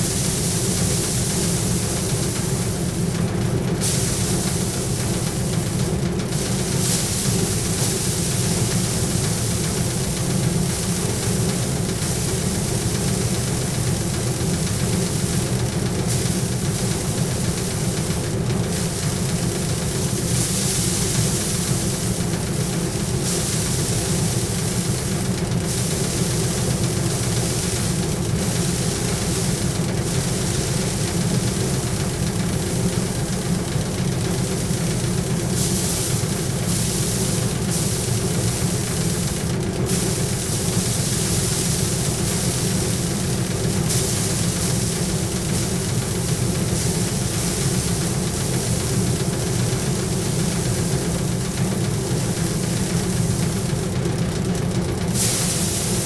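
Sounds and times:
rushing rattling of grain threshing: 0.0 - 56.0.

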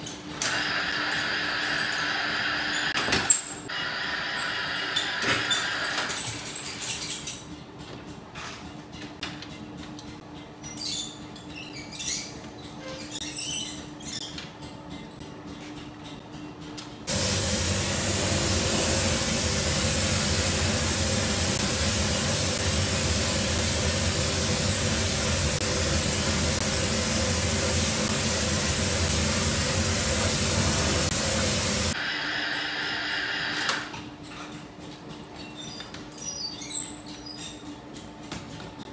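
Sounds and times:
spray gun hissing: 17.1 - 32.0.

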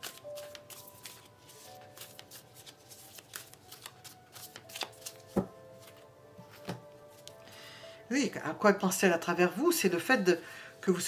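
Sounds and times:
cards shuffling: 0.0 - 7.4.

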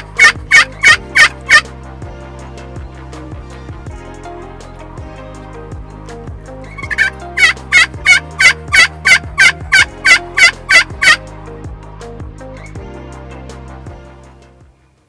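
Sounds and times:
wild turkey calling: 0.0 - 1.7, 6.7 - 11.2.

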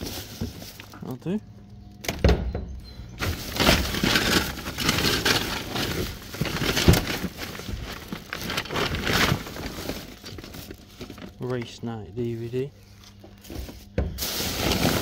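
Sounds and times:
bags rustling and crinkling: 0.0 - 1.4, 3.1 - 15.0.

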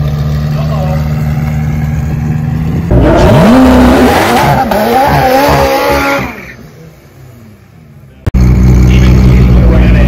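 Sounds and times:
car engine revving hard: 2.9 - 6.6.

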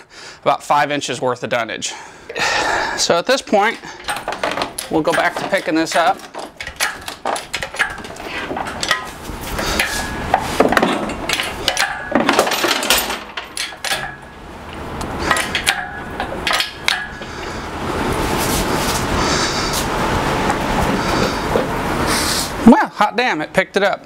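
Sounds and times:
metal clanks and knocks: 3.6 - 14.4, 15.2 - 17.3
chains clinking and rattling: 10.9 - 14.3.

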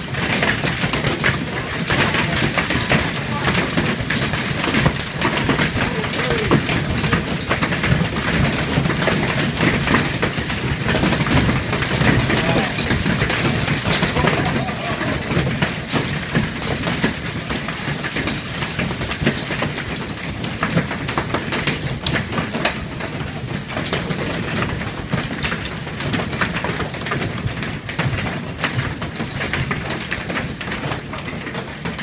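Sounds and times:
hail clattering on windows: 0.0 - 32.0
heavy rain hissing: 5.4 - 7.1, 11.3 - 19.0.

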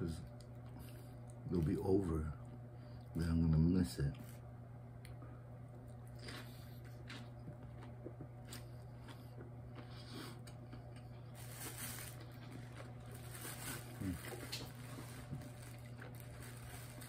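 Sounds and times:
steady low hum: 0.0 - 17.0
chewing and mouth sounds: 5.8 - 11.4.

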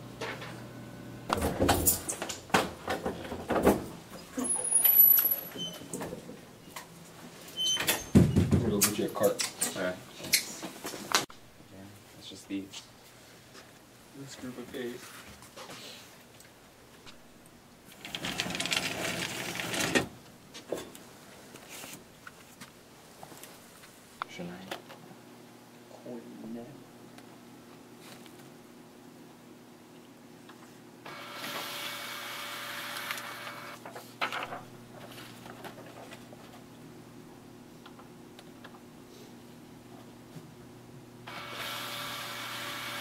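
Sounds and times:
paper folders rustling: 33.8 - 36.7.

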